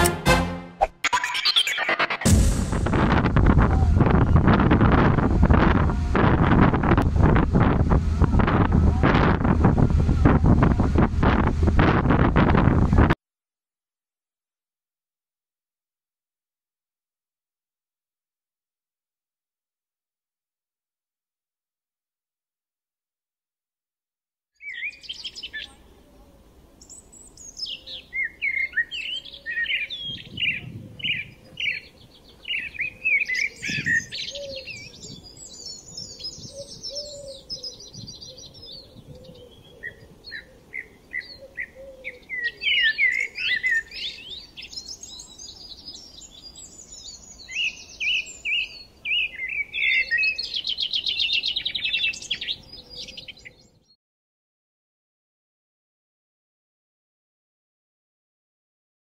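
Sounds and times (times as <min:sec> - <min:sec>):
birds singing and chirping: 0:01.1 - 0:02.0, 0:24.6 - 0:25.9, 0:26.8 - 0:54.0.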